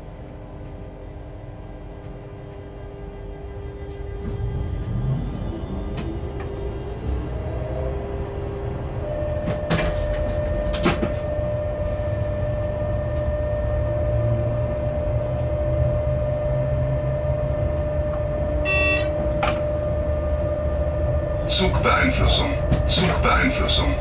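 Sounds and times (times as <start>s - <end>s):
locomotive rumble and whine: 0.0s - 24.0s
electronic beep: 18.6s - 19.1s.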